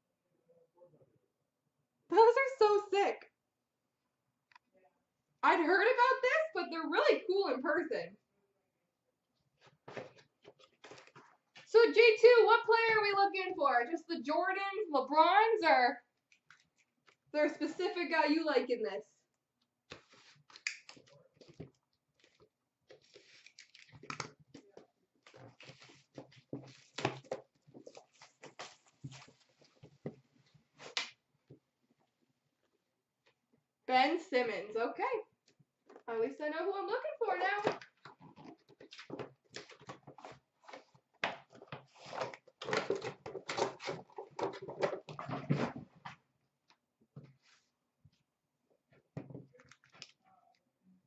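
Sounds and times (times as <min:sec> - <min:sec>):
plastic shrink wrap crinkling: 0:20.0 - 0:24.6.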